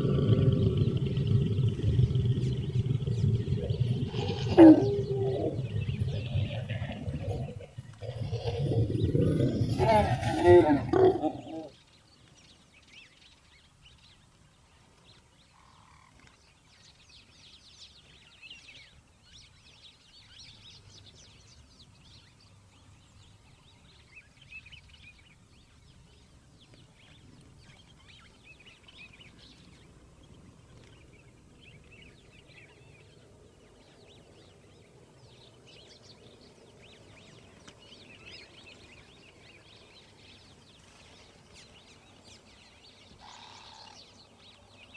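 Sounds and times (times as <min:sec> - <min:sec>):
lion roaring: 0:00.0 - 0:11.7.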